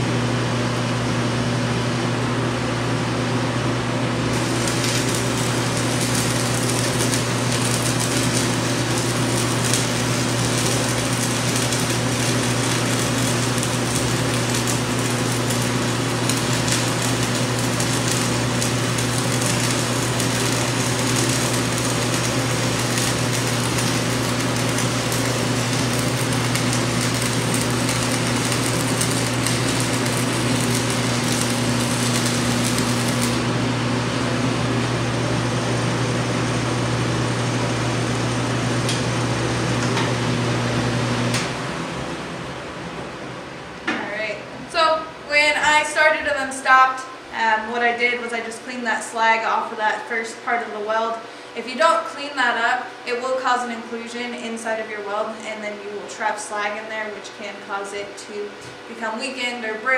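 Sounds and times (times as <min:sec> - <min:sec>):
ventilation fan humming: 0:00.0 - 0:59.9
welding arc crackling: 0:04.2 - 0:41.6.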